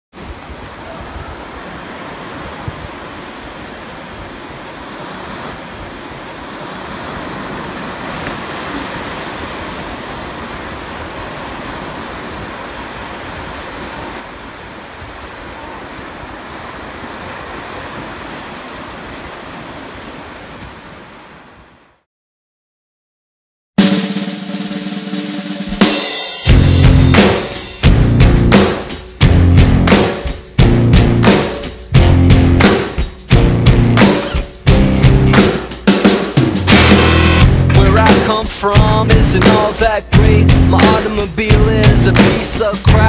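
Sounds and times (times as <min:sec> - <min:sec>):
ocean surf breaking on beach: 0:00.1 - 0:22.0, 0:37.9 - 0:43.0
wind rumbling on microphone: 0:00.2 - 0:21.9.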